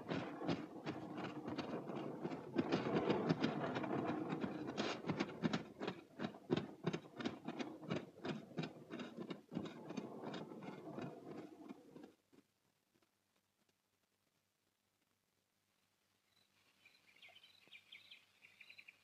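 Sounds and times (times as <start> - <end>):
wooden cart rattling: 0.0 - 12.2.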